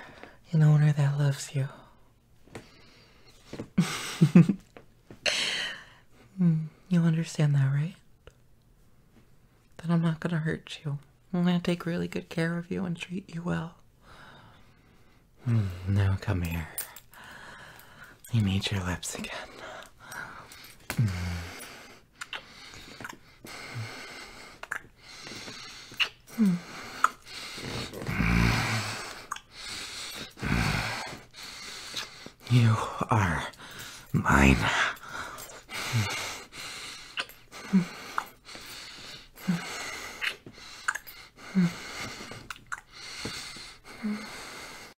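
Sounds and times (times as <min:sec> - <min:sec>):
breathing: 0:02.5 - 0:03.6, 0:14.0 - 0:15.8, 0:16.8 - 0:18.3, 0:19.3 - 0:32.4, 0:33.5 - 0:45.0
man kissing: 0:22.2 - 0:23.2, 0:24.6 - 0:24.9, 0:25.9 - 0:29.5, 0:31.9 - 0:32.2, 0:37.0 - 0:38.3, 0:40.1 - 0:41.1, 0:42.4 - 0:42.9
wet lip smacks: 0:22.2 - 0:23.2, 0:24.6 - 0:24.9, 0:25.9 - 0:26.2, 0:40.2 - 0:41.1.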